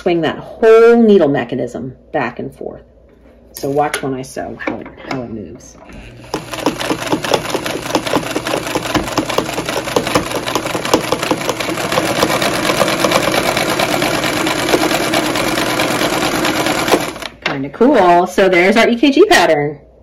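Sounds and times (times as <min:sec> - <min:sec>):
sewing machine ticking: 0:05.9 - 0:17.3.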